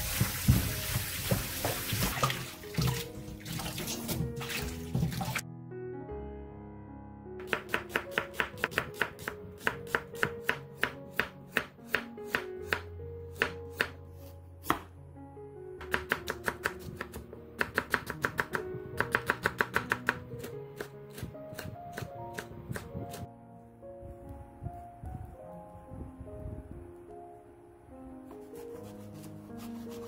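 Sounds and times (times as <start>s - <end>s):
soft background music: 0.0s - 30.0s
knife chopping on wooden board: 7.4s - 12.8s, 14.6s - 14.9s, 15.8s - 20.2s.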